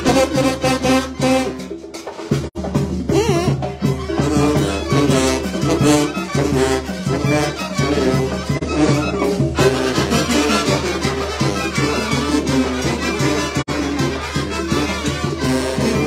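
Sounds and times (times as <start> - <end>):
brass band playing: 0.0 - 16.0.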